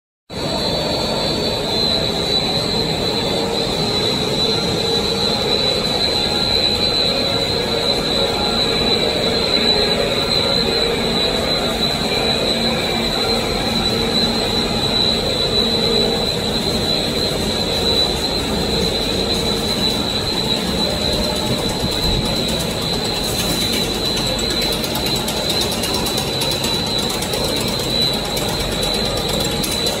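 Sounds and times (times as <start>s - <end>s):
high-pitched machine whine: 0.3s - 30.0s
wire drawing machine drone: 0.3s - 30.0s
wire drawing machine clatter: 16.2s - 30.0s
fast fine ticking: 16.3s - 30.0s.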